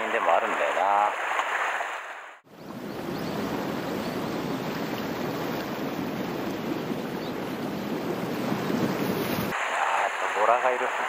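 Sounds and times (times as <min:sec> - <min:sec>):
sea waves against rocky shore: 0:00.3 - 0:11.0.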